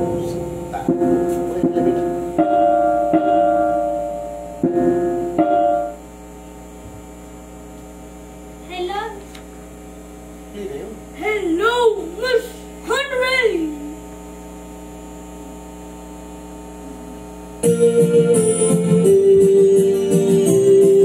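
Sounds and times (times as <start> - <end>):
electronic keyboard chords: 0.0 - 6.1, 16.8 - 21.0
mains hum: 0.0 - 21.0.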